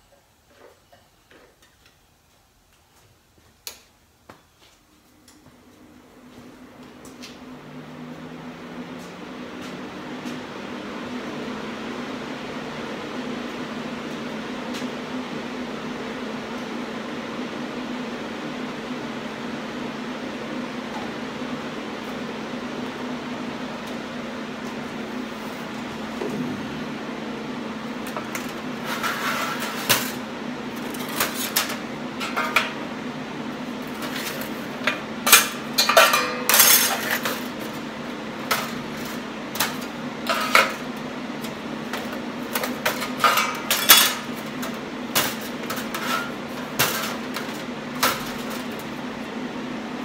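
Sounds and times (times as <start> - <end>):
steady low hum: 2.2 - 50.0
metal tools clanking on steel table: 35.4 - 37.3, 43.2 - 44.3.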